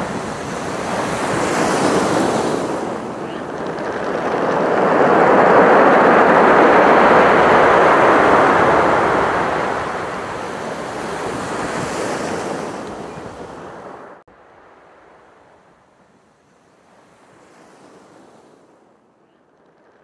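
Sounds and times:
ocean waves washing: 0.0s - 19.1s.

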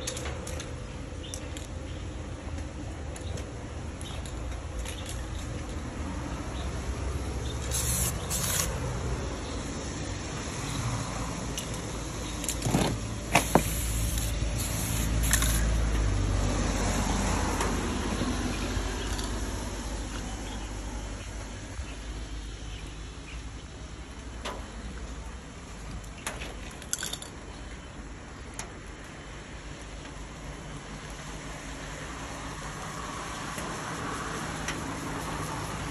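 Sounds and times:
spray can hissing: 7.6s - 8.8s, 13.4s - 15.8s.

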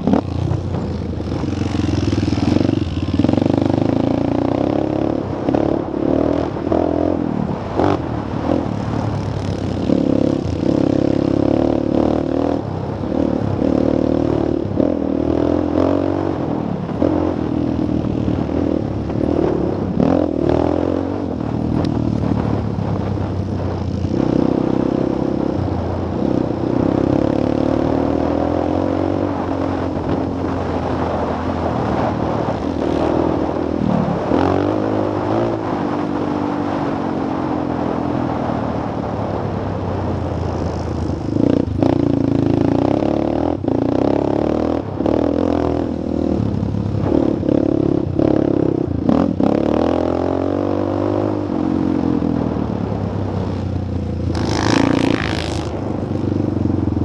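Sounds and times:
quad engine revving: 54.3s - 55.8s.

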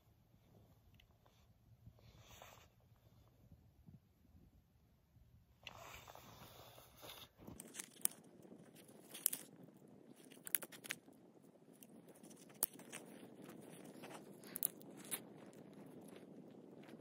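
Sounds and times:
campfire crackling and popping: 7.4s - 17.0s.

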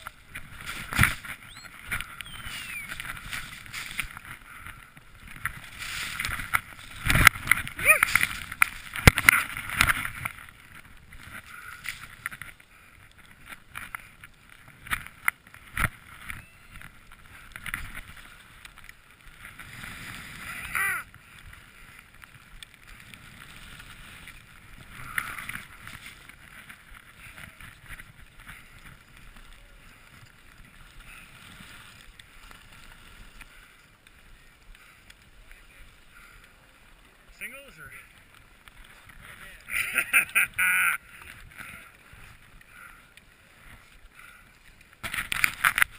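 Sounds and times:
ski knocks and bumps: 0.0s - 4.4s, 5.0s - 12.6s, 45.0s - 45.9s
brief wavering tone: 1.5s - 2.9s
skis hissing through powder snow: 2.3s - 4.2s, 5.6s - 7.1s, 19.6s - 21.9s, 23.0s - 27.3s, 28.5s - 35.0s.

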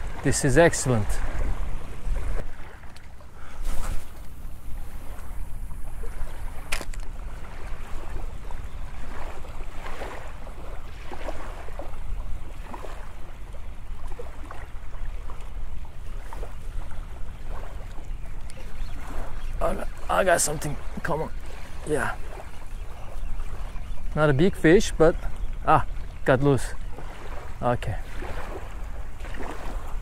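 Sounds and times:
waves lapping on sandy shore: 0.0s - 30.0s
wind buffeting microphone: 0.0s - 30.0s
sharp click: 6.7s - 7.1s.

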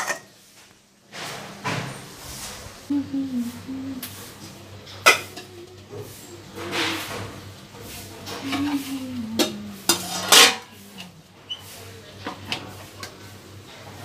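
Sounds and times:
steel plates clattering and scraping: 6.5s - 11.6s.

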